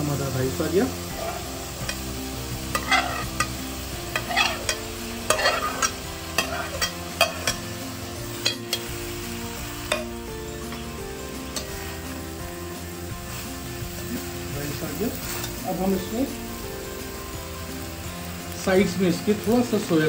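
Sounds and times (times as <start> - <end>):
vegetables sizzling: 0.0 - 20.0
spoon scraping and clinking wok: 1.2 - 9.0, 9.8 - 11.9.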